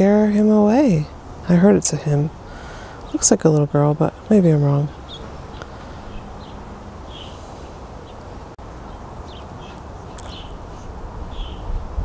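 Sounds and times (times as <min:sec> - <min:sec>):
small birds chirping: 0:01.0 - 0:11.8.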